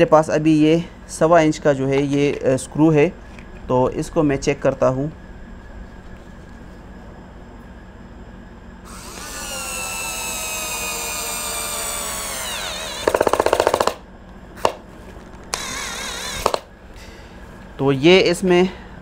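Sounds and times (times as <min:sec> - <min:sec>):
cordless screwdriver motor whining: 0:08.9 - 0:13.8, 0:15.5 - 0:16.6.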